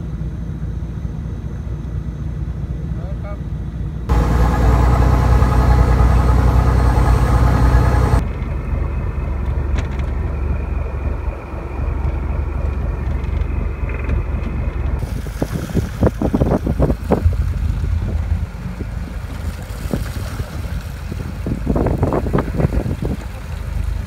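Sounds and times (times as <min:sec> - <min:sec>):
diesel engine drone: 0:00.0 - 0:24.0
wind buffeting microphone: 0:10.9 - 0:24.0.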